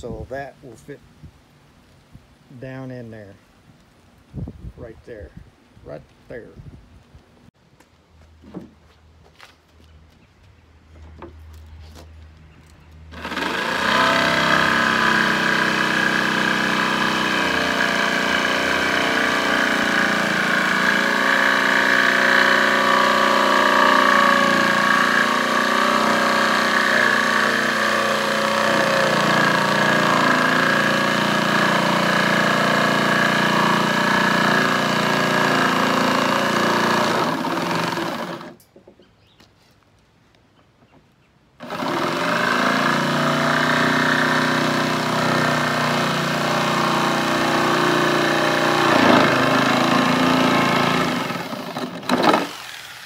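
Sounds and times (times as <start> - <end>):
jigsaw cutting plywood: 13.1 - 38.6, 41.6 - 53.0.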